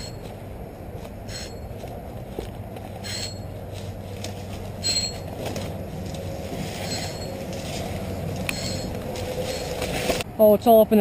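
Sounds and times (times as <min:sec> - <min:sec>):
high squeaks: 0:00.0 - 0:00.3, 0:01.2 - 0:01.8, 0:03.0 - 0:03.6, 0:04.8 - 0:05.4, 0:06.6 - 0:10.2
fishing reel whirring: 0:01.3 - 0:01.6, 0:03.0 - 0:03.4, 0:08.5 - 0:09.7.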